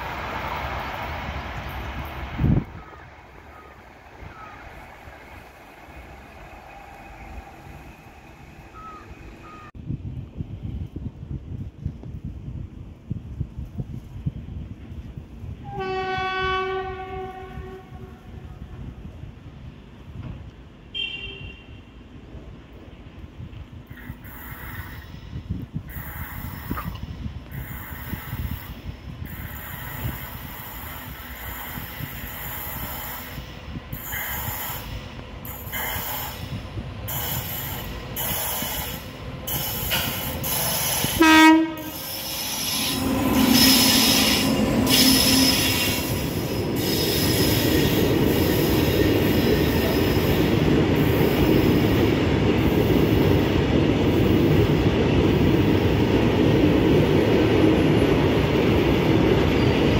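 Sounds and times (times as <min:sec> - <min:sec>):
train wheel and rail noise: 0:00.0 - 0:59.9
train horn blast: 0:15.6 - 0:18.8, 0:21.0 - 0:21.9, 0:41.1 - 0:46.2.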